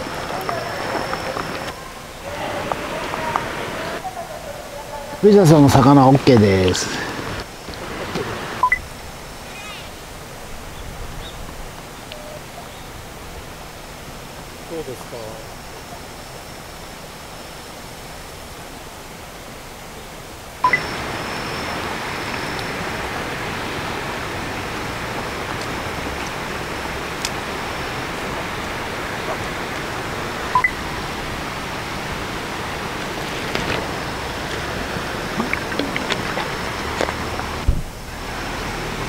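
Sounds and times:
rushing outdoor noise: 0:00.0 - 0:39.0
short high beeps: 0:08.6 - 0:08.8, 0:30.5 - 0:30.8.

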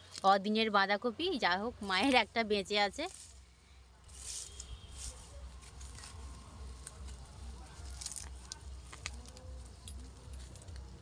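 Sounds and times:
cabbage leaves rustling: 0:01.8 - 0:11.0
sharp clicks and cracks: 0:07.8 - 0:11.0.

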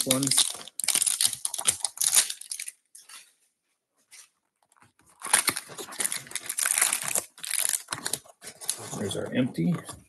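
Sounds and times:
plastic wrap and cardboard crinkling: 0:00.0 - 0:09.8.

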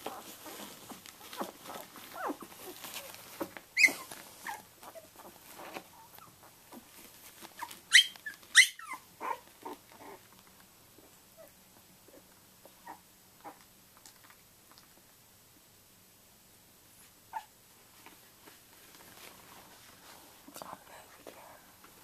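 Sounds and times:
puppies squeaking and whimpering: 0:01.2 - 0:03.2, 0:03.8 - 0:05.3, 0:07.6 - 0:10.2
puppy high squeals: 0:03.8 - 0:04.6, 0:07.9 - 0:09.4.

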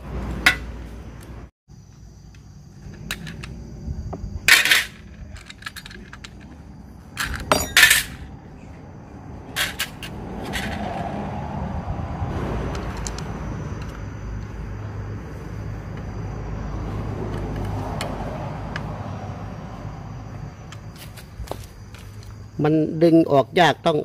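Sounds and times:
hand tools clinking on metal: 0:04.5 - 0:08.3
low rumble: 0:08.1 - 0:16.9.

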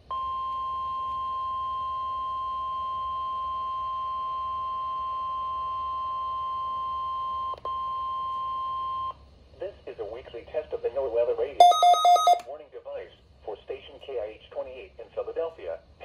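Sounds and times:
steady alarm tone: 0:11.6 - 0:12.4.

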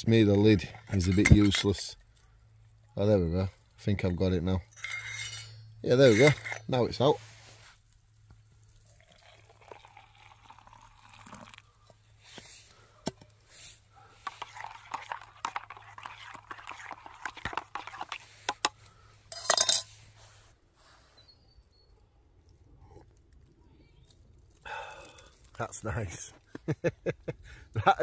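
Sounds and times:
water pouring into steel mug: 0:08.7 - 0:11.9, 0:14.2 - 0:18.7
spoon clinking in metal mug: 0:19.3 - 0:19.9.

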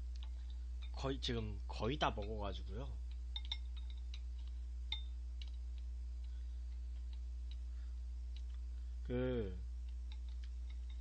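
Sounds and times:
low electrical hum: 0:00.0 - 0:11.0
chopsticks tapping ceramic bowls: 0:00.2 - 0:07.7, 0:09.8 - 0:11.0.

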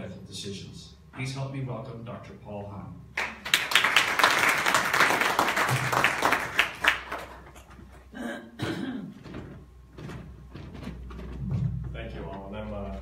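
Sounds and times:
audience applauding: 0:03.2 - 0:07.6.

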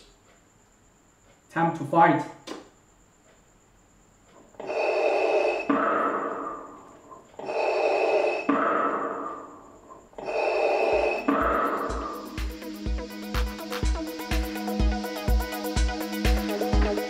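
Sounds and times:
mechanical respirator breathing: 0:04.5 - 0:13.3.

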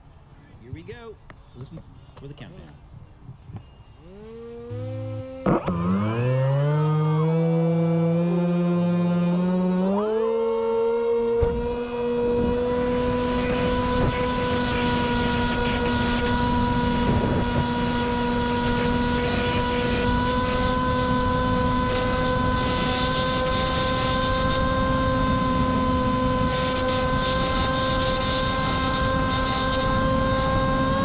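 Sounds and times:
electric motor and propeller whining: 0:03.8 - 0:31.0
wind buffeting on microphone: 0:11.4 - 0:31.0.

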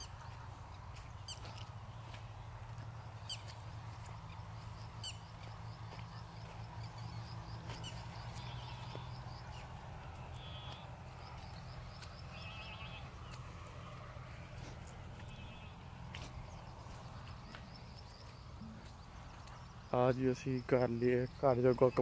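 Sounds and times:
bird chirps: 0:00.0 - 0:14.0
buzzy bird calls: 0:00.0 - 0:22.0.

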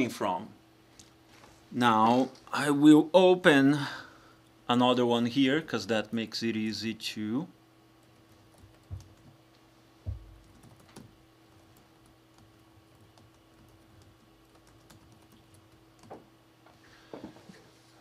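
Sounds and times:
steady hum: 0:00.0 - 0:18.0
keyboard typing: 0:08.0 - 0:09.4, 0:10.1 - 0:16.2.

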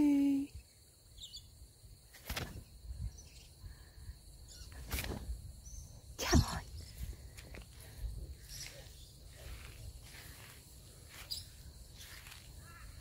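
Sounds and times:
high insect hum: 0:00.0 - 0:13.0
bird chirp: 0:00.5 - 0:01.6, 0:02.5 - 0:04.8, 0:05.6 - 0:13.0
rustles in the grass: 0:06.2 - 0:13.0.

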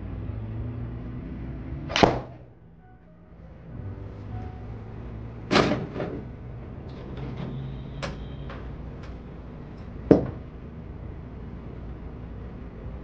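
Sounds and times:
golf balls clacking: 0:09.8 - 0:10.5.

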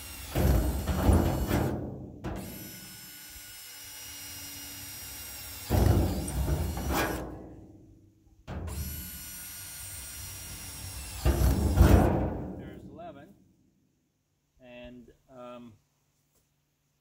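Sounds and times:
power drill boring through steel: 0:00.0 - 0:01.7, 0:02.4 - 0:07.2, 0:08.7 - 0:11.8.

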